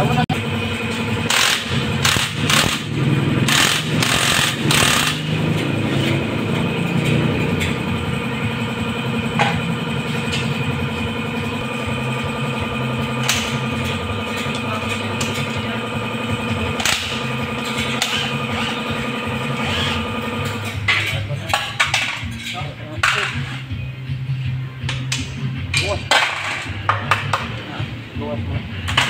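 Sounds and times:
engine humming: 0.0 - 22.0
impact driver rattling: 1.3 - 5.8.

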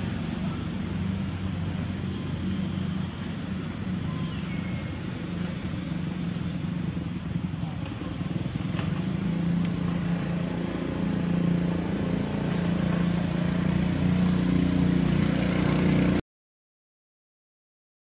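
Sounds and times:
outdoor background noise: 0.0 - 16.2.

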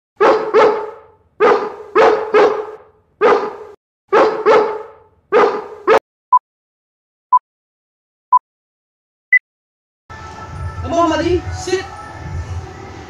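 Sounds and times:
dog barking: 0.2 - 6.0.

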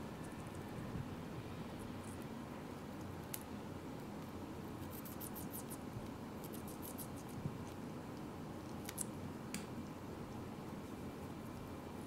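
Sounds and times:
beak nibbling crisp clicks: 3.2 - 3.5, 4.8 - 7.4, 8.1 - 9.6.

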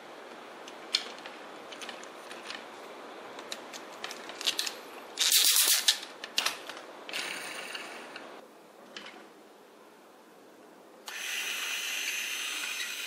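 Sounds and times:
plastic toy parts clicking: 3.4 - 6.8.

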